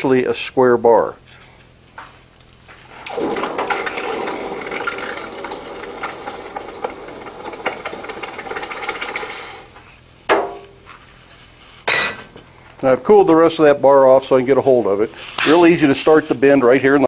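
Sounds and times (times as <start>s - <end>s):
hot steel hissing in water: 3.0s - 9.8s
metal clatter: 11.9s - 12.5s.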